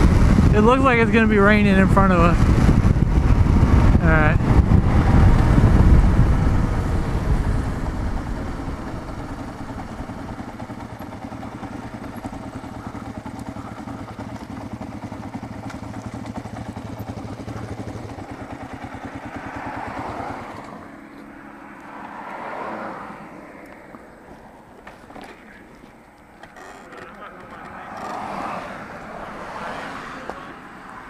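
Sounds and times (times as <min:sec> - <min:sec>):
wind noise: 0:00.0 - 0:12.9
motorcycle engine idling: 0:00.0 - 0:22.0
motorcycle engine: 0:00.0 - 0:31.0.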